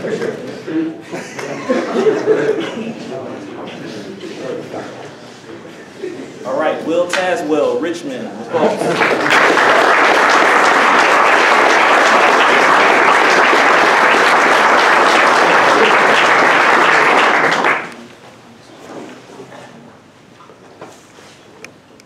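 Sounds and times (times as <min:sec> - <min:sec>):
audience applauding: 0:08.7 - 0:18.0.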